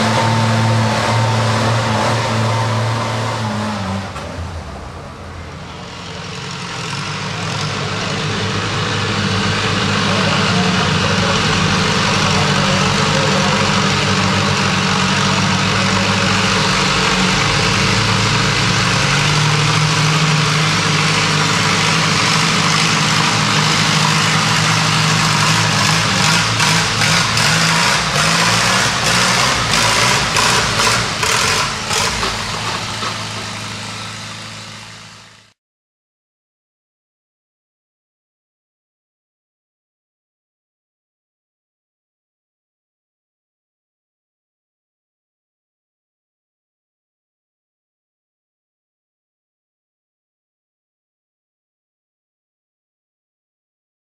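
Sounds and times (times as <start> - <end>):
tractor engine running under load: 4.0 - 35.6.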